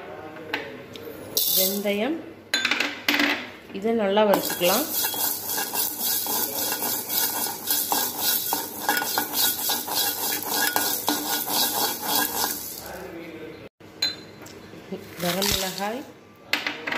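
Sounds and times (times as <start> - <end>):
seeds rattling against pan: 1.4 - 1.9, 4.4 - 13.1, 15.2 - 16.0
spoon scraping spices in pan: 4.3 - 13.1.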